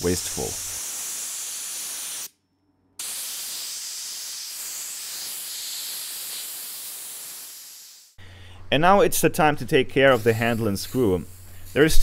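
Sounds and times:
sandblasting gun hissing: 0:00.0 - 0:02.3, 0:03.0 - 0:08.2, 0:10.0 - 0:12.0.

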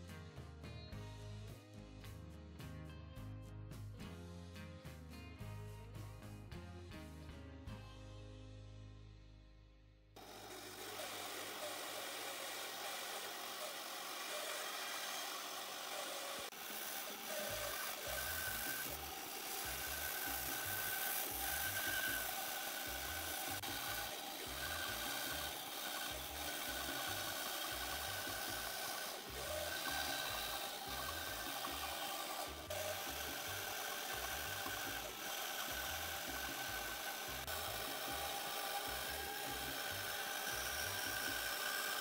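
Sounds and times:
bandsaw cutting wood: 0:10.2 - 0:42.0.

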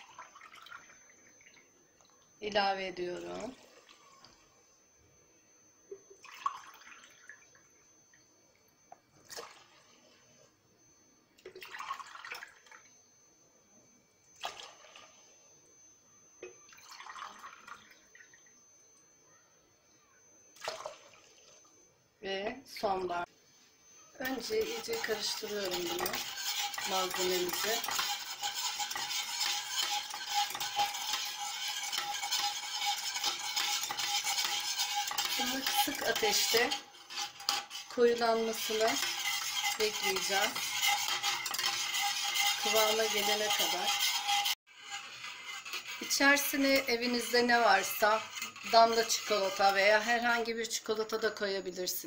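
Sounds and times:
water pouring into metal pot: 0:00.0 - 0:01.7, 0:06.2 - 0:07.5, 0:11.5 - 0:12.8, 0:16.7 - 0:18.5
liquid swishing in a pot: 0:22.8 - 0:52.0
utensil scraping metal pot: 0:24.2 - 0:52.0.

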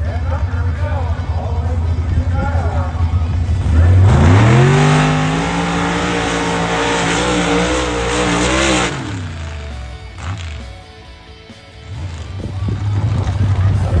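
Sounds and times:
vehicle engine revving: 0:03.0 - 0:11.0.

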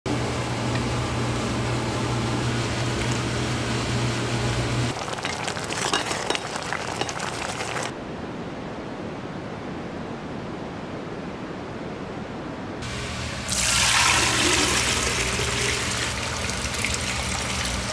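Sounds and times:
low machine hum: 0:00.1 - 0:05.1, 0:12.8 - 0:17.9
spatula scraping a steel pot: 0:05.7 - 0:07.9.

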